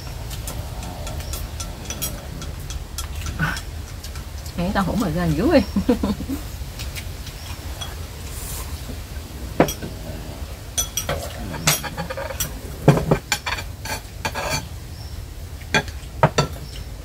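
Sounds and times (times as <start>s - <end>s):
utensils clinking on ceramic bowls: 0.0s - 6.4s, 7.4s - 8.1s, 10.8s - 14.7s.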